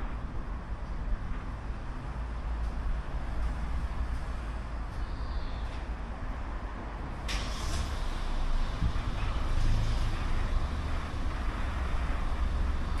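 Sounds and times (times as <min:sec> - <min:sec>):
car low rumble: 0:00.0 - 0:13.0.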